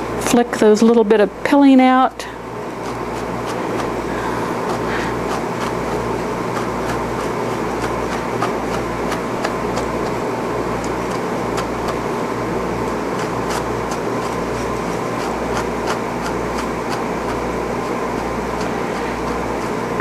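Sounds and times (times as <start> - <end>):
fan motor whirring hum: 0.0 - 20.0
brush flicking through wool: 2.5 - 20.0.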